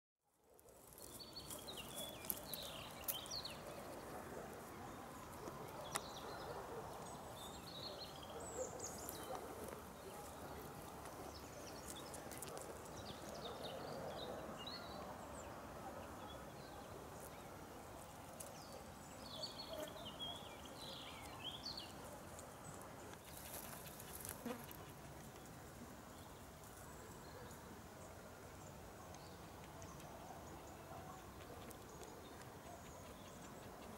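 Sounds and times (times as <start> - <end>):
distant dogs barking: 3.5 - 11.4, 12.3 - 17.0, 29.3 - 33.9.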